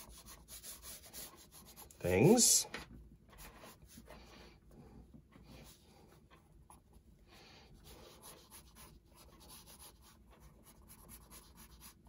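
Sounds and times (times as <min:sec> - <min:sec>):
pencil scratching on paper: 0:00.0 - 0:02.6, 0:03.4 - 0:04.4, 0:07.7 - 0:12.0.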